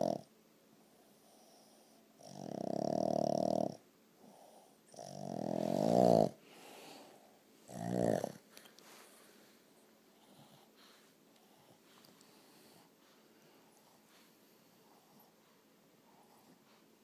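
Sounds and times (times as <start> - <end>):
dog snoring: 0.0 - 0.3, 1.1 - 6.8, 7.7 - 8.5
dog breathing quietly: 5.4 - 17.0.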